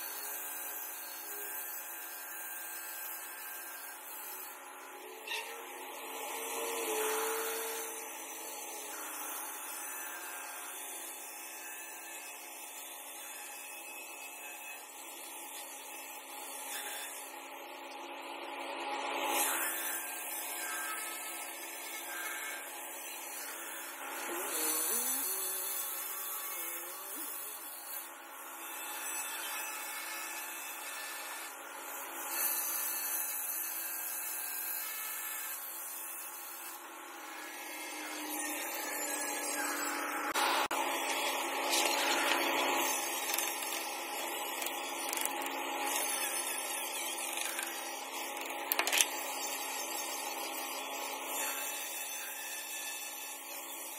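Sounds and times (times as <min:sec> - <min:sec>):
electric grinder on stone: 0:00.0 - 0:53.9.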